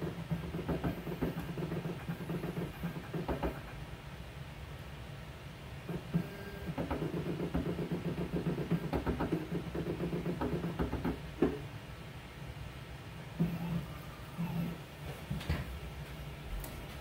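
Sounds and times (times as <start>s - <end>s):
camera motors whirring: 0.1s - 3.7s, 13.4s - 14.8s.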